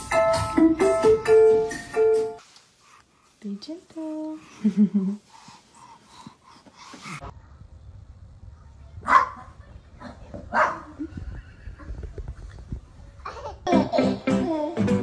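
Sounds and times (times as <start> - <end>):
small dog barking: 9.0 - 10.9.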